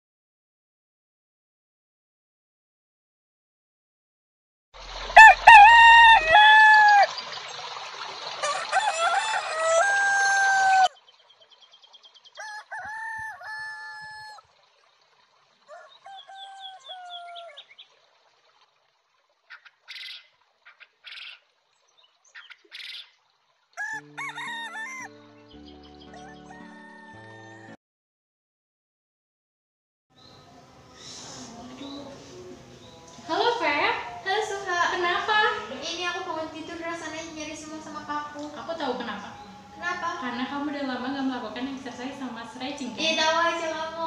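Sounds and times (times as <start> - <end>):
rooster crowing: 5.2 - 7.1, 8.4 - 11.0, 12.4 - 14.4, 15.7 - 17.6, 23.8 - 25.2, 26.1 - 27.8.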